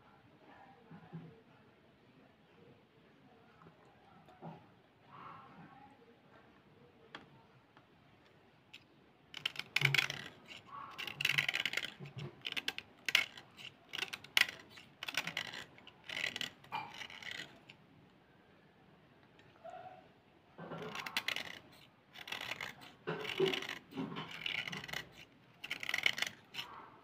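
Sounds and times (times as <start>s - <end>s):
knife scraping slate pencil: 9.3s - 17.8s, 20.6s - 27.0s.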